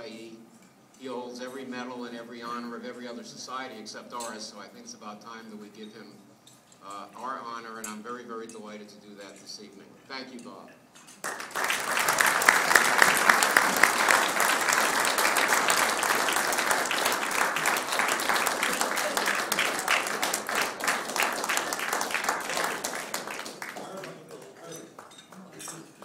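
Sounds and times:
audience applauding: 11.2 - 26.0.

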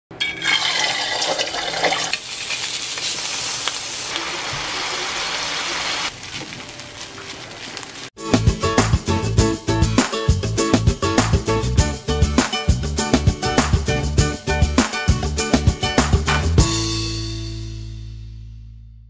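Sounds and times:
oil sizzling in a frying pan: 0.3 - 6.6
music: 8.2 - 19.0.

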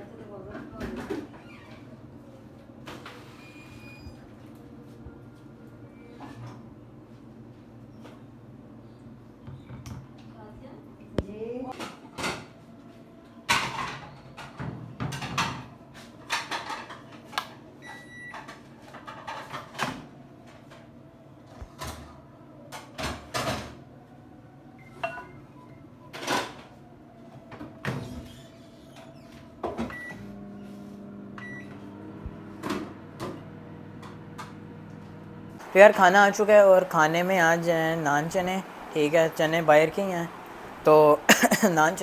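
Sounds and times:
microwave oven humming: 12.2 - 42.0.

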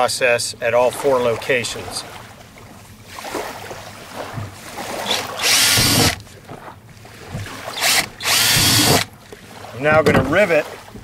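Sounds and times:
cordless drill boring plastic: 5.1 - 6.2, 7.8 - 9.1.

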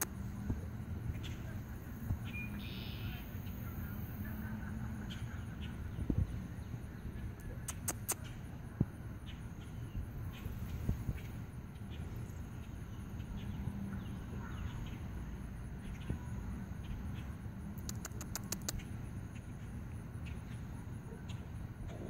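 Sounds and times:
low rumble on microphone: 0.1 - 7.7
sharp clicks: 7.4 - 8.3, 17.8 - 18.9.

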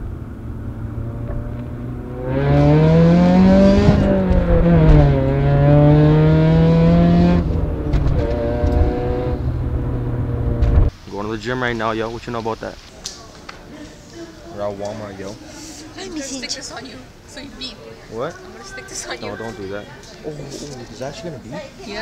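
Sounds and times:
car engine droning: 0.0 - 10.9.

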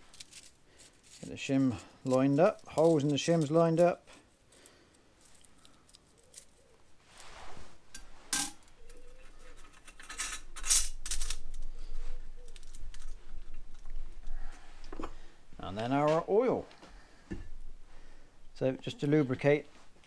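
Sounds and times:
metal shims clicking and scraping: 7.9 - 11.6.

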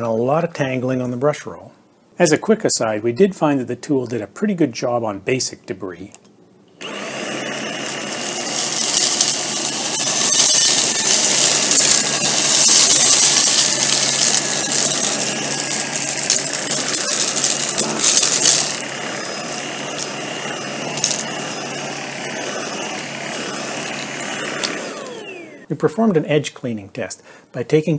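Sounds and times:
cordless vacuum motor whine: 6.8 - 25.7
debris rattling through vacuum: 7.7 - 25.6.

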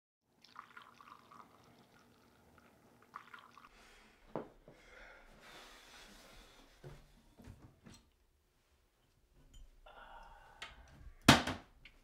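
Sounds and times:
coffee pouring into a mug: 0.4 - 3.7.

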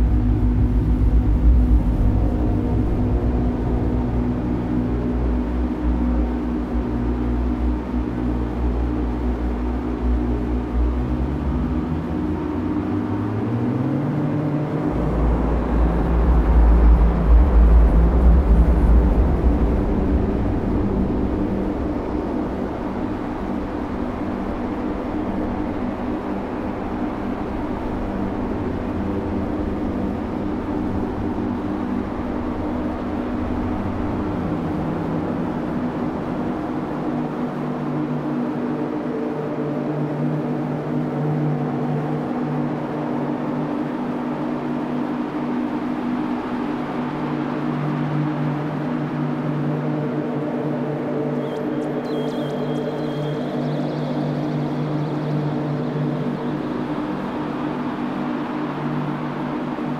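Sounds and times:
loud deep rumble: 0.0 - 43.1.

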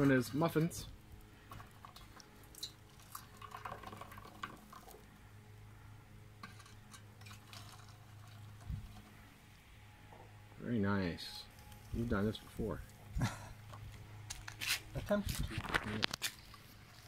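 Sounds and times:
molten metal trickling: 0.0 - 9.6
low steady hum: 0.0 - 17.0.

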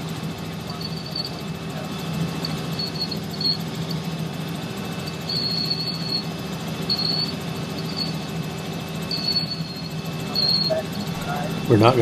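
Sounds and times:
helicopter engine and rotor drone: 0.0 - 12.0
high-pitched whistling tone: 5.2 - 8.2, 9.1 - 11.5.

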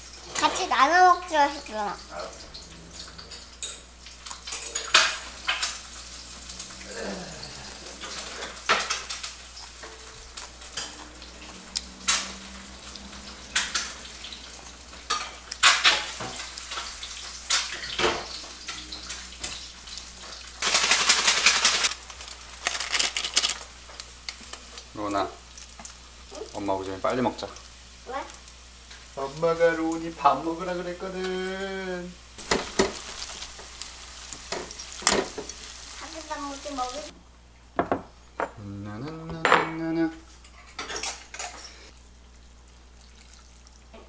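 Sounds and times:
loud noisy cooking burst: 0.0 - 37.2
saucepan and utensils clinking: 2.0 - 21.9.

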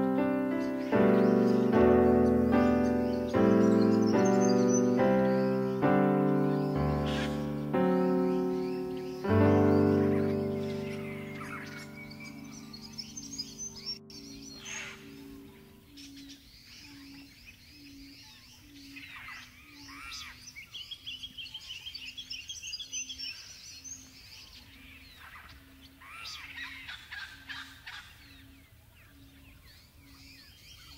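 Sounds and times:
held music chord: 0.0 - 15.9
birds chirping and calling: 0.0 - 30.9.

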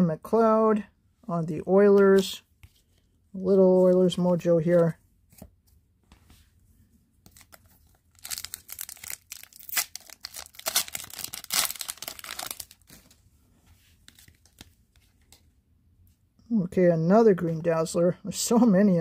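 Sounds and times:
foil wrapper tearing and crinkling: 7.3 - 12.9.

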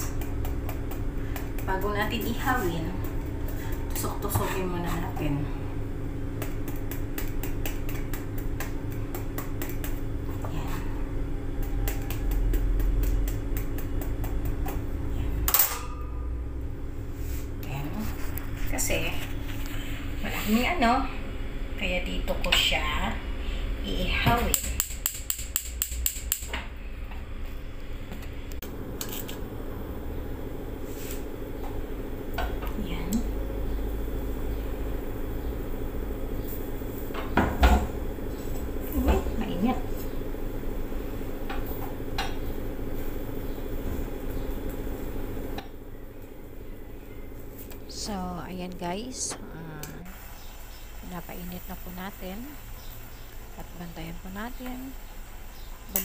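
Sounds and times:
steady low hum: 0.0 - 56.0
spark igniter clicking: 24.5 - 26.6.

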